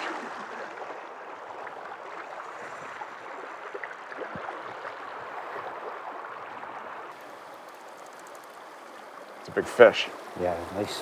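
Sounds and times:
water rushing over rocks: 0:00.0 - 0:11.0
small ticks: 0:07.2 - 0:09.0.

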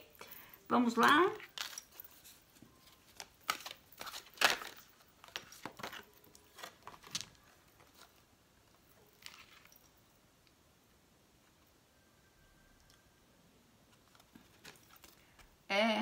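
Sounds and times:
cards being shuffled: 0:01.0 - 0:08.2.

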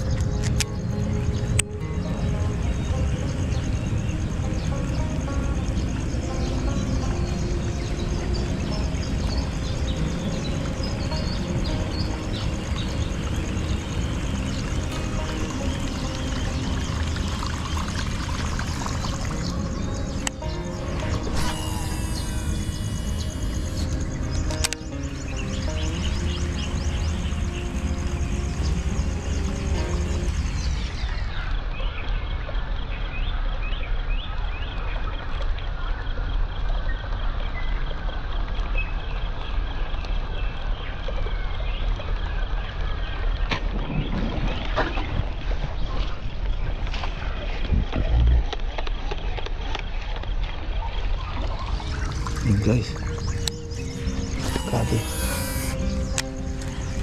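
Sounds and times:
small birds chirping: 0:00.0 - 0:57.0
high-pitched pulsing: 0:18.6 - 0:30.9, 0:51.3 - 0:57.0.

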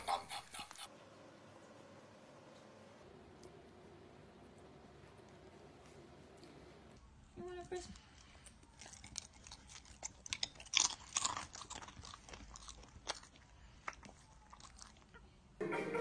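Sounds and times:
dog crunching a dry snack: 0:07.6 - 0:15.2.

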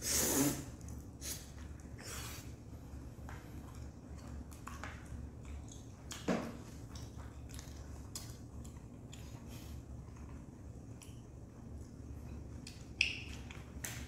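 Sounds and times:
low steady hum: 0:00.0 - 0:14.0
chewing: 0:03.2 - 0:14.0.

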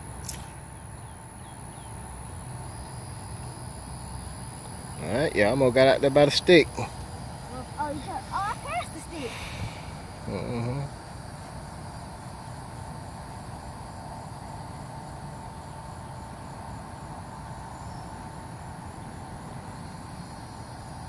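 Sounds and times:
insects chirring: 0:00.0 - 0:21.0
thin steady whine: 0:00.0 - 0:21.0
faint high ticks: 0:00.2 - 0:00.6.

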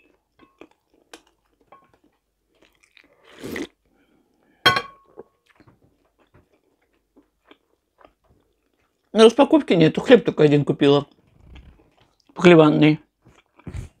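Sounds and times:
mouth chewing food: 0:00.0 - 0:03.9, 0:05.2 - 0:09.1, 0:13.2 - 0:14.0.

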